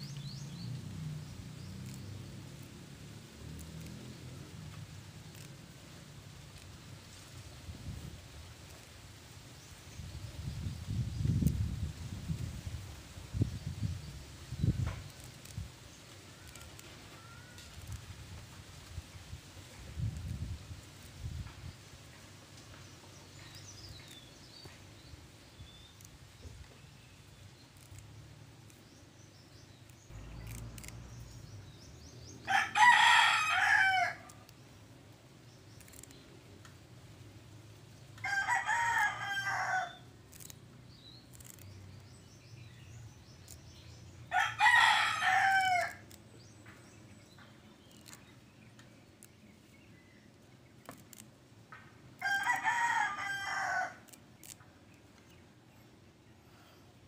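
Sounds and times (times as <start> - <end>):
rooster crowing: 32.4 - 34.4, 38.2 - 40.0, 44.3 - 46.0, 52.2 - 54.0.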